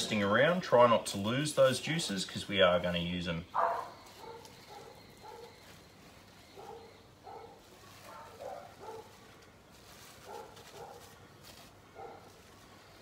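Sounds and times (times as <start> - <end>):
cling film crinkling: 2.7 - 13.0.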